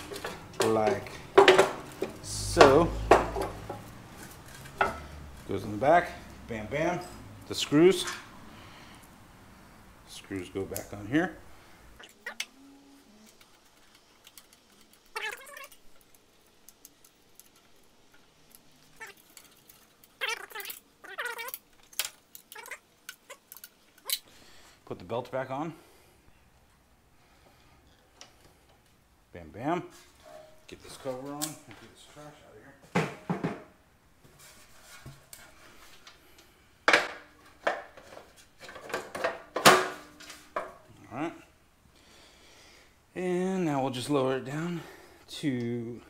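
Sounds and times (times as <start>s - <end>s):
cat meowing: 15.1s - 15.8s, 20.2s - 21.6s, 22.5s - 23.4s.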